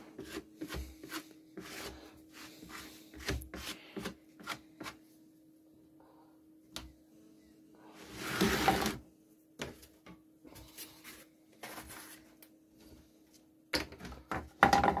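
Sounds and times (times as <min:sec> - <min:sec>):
sheet scraping on workbench: 0:08.0 - 0:09.0.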